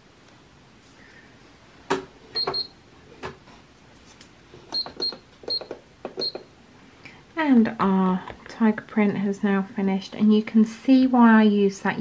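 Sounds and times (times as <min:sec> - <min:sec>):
nail lamp beeping: 0:02.4 - 0:02.8, 0:04.7 - 0:06.5.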